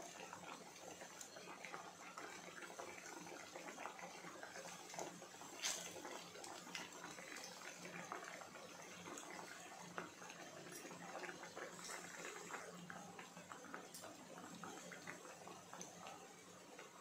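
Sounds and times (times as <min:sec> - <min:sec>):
deep-frying sizzle with pops: 0:00.0 - 0:17.0.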